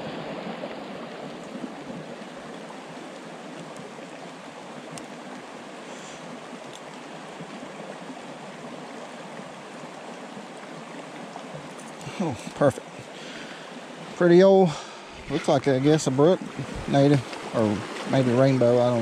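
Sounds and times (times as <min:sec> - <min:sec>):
creek running over rocks: 0:00.0 - 0:19.0
faint ticks: 0:04.9 - 0:07.0.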